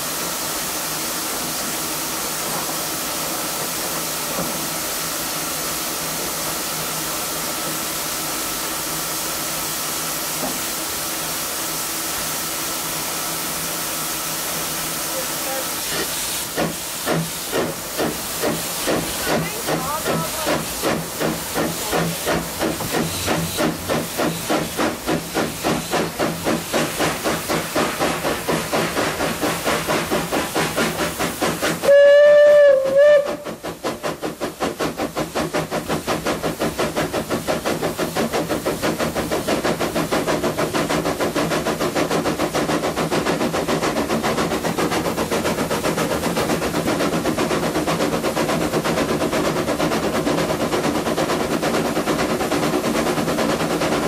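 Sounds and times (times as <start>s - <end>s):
steam locomotive chuffing: 0.0s - 54.0s
steam whistle blasts: 31.8s - 33.6s.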